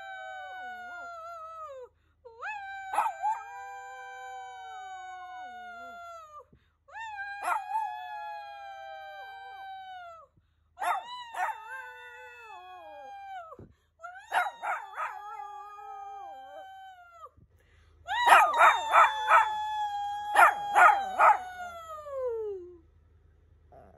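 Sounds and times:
dog howling and yelping: 0:02.5 - 0:06.1, 0:07.2 - 0:09.7, 0:10.8 - 0:13.5, 0:14.2 - 0:17.2, 0:18.1 - 0:22.0.

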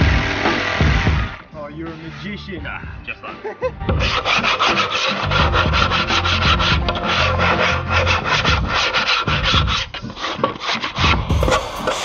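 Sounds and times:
sandpaper rubbing on wood: 0:04.0 - 0:12.0.

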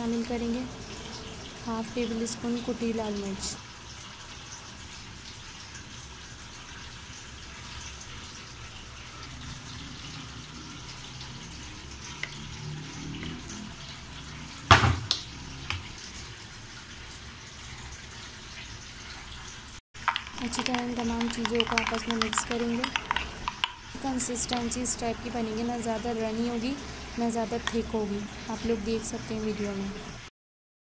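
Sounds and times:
glass bowls clinking: 0:20.0 - 0:23.9.

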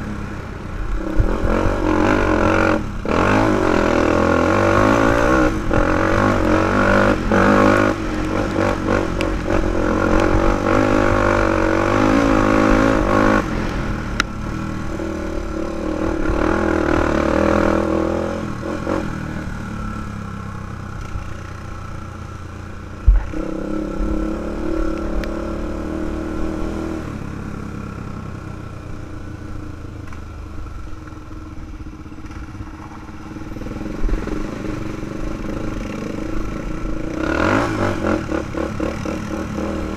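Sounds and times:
quad engine revving: 0:00.0 - 0:20.3, 0:23.1 - 0:27.8, 0:33.2 - 0:39.9.

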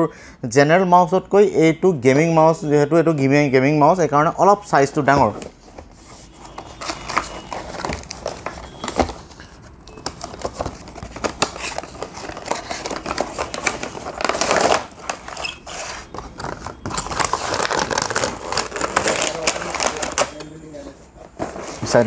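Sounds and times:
packaging rustling and scraping: 0:05.0 - 0:22.0.

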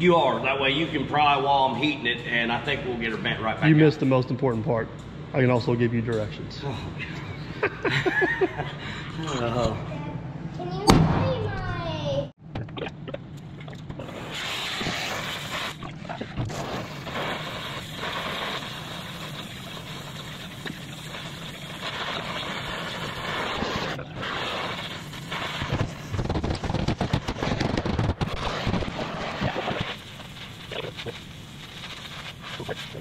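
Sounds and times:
steady rushing torch noise: 0:14.0 - 0:33.0.

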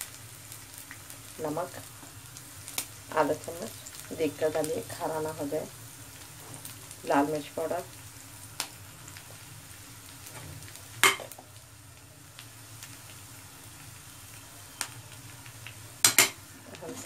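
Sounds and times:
food sizzling in hot oil: 0:00.0 - 0:17.0
spoon knocking against pan: 0:11.0 - 0:11.4, 0:16.0 - 0:16.4.

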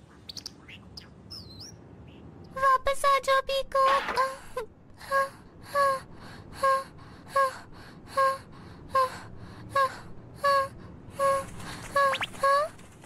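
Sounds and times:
cartoon voice sobbing: 0:08.2 - 0:12.8.

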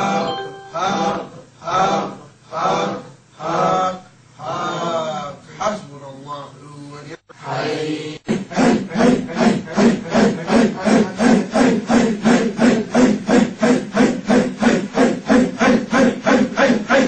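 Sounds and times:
group chanting breathy grunts: 0:08.2 - 0:17.0.

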